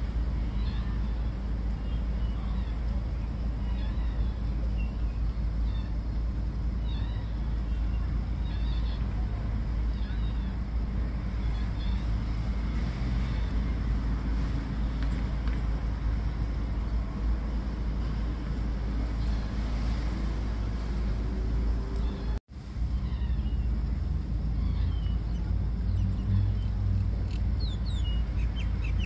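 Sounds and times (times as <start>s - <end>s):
low outdoor rumble: 0.0s - 29.0s
faint bird chirps: 0.4s - 6.1s, 6.8s - 10.7s.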